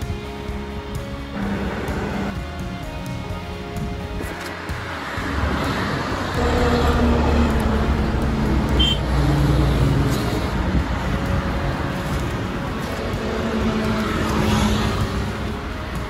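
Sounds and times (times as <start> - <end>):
vehicle engine passing: 1.4 - 2.4, 4.6 - 15.4.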